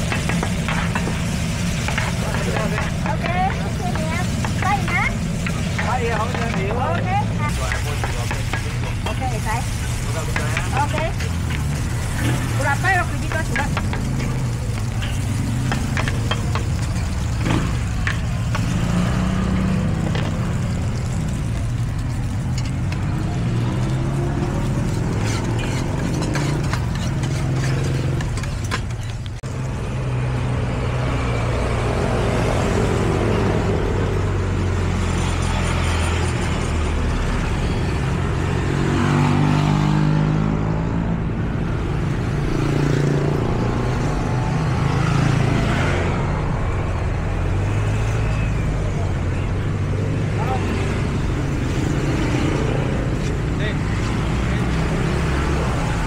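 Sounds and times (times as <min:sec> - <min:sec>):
metal spatula scraping a wok: 0:00.0 - 0:20.7, 0:23.8 - 0:29.3
motorcycles passing: 0:00.0 - 0:56.0
street traffic hum: 0:00.0 - 0:56.0.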